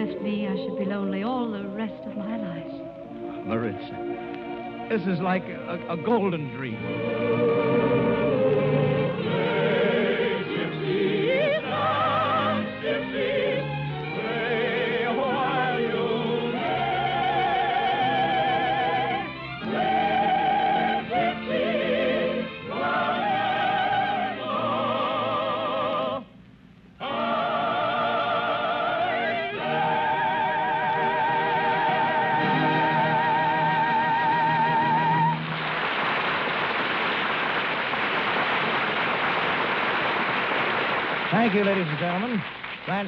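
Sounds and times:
operatic singing with vibrato: 0.0s - 26.4s, 27.0s - 35.4s
orchestra playing: 1.9s - 25.0s, 29.5s - 35.8s.

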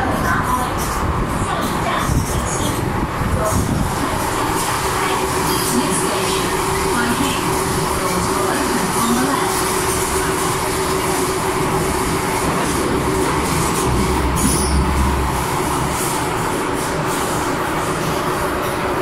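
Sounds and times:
train wheels on rails: 0.0s - 19.0s
deep rumble: 13.1s - 16.6s.

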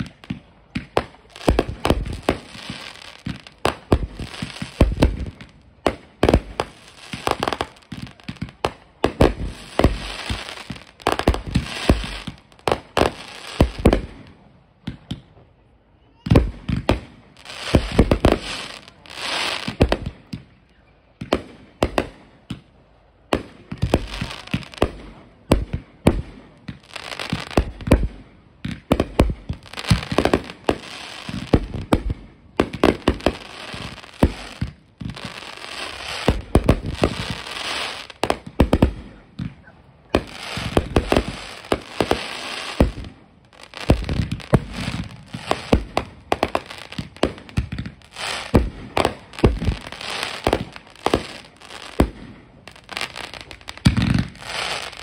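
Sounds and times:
firework crackling: 0.0s - 15.0s, 16.3s - 20.6s, 23.2s - 55.0s
firework bangs: 0.0s - 15.3s, 16.3s - 20.5s, 23.3s - 55.0s.

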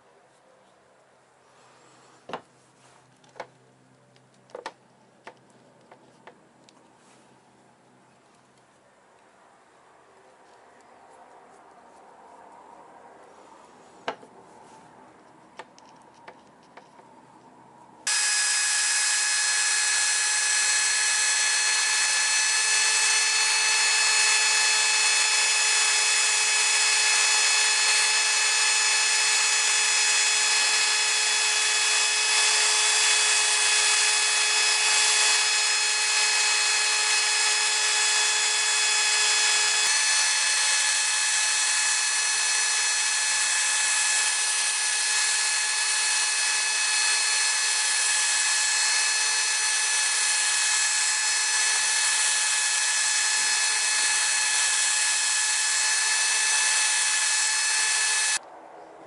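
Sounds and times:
electric drill whining: 18.1s - 58.4s.

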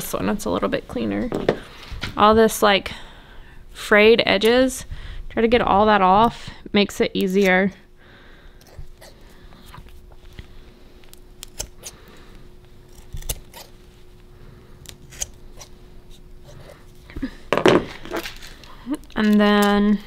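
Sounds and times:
scissors snipping: 11.4s - 12.0s, 12.9s - 13.8s, 14.8s - 16.2s, 19.0s - 19.9s.

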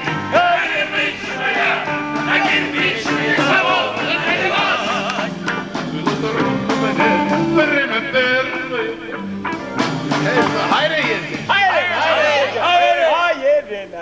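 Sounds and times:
instrumental accompaniment: 0.0s - 12.9s
man singing into microphone: 6.8s - 9.2s.

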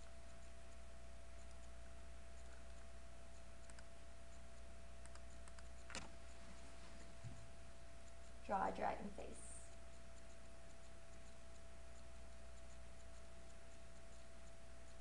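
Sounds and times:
faint steady tone: 0.0s - 15.0s
low background hum: 0.0s - 15.0s
small clicks: 2.4s - 3.9s, 5.0s - 6.1s.

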